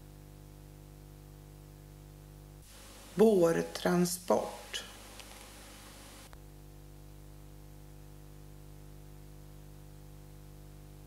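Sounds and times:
mains hum: 0:00.0 - 0:11.0
faint hiss: 0:02.6 - 0:06.4.

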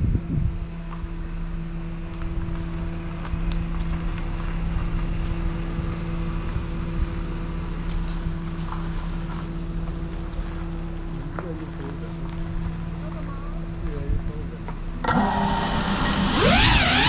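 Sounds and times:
wind rumble on microphone: 0:00.0 - 0:01.0
drone propellers humming: 0:14.9 - 0:17.0.

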